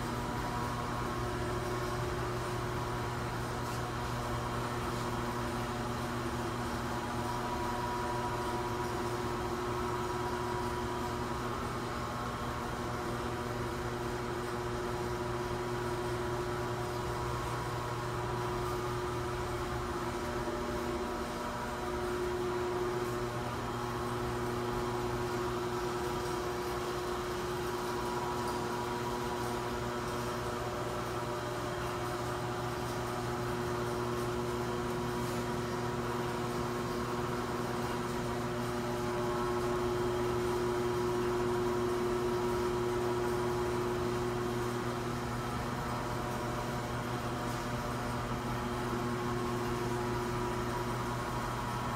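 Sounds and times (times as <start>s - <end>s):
electric fans humming: 0.0s - 51.9s.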